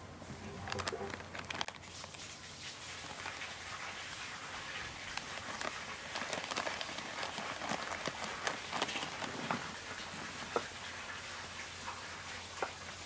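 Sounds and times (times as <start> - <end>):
cats rustling and scuffling: 0.6 - 11.3
small clicks and scrapes: 5.0 - 9.7.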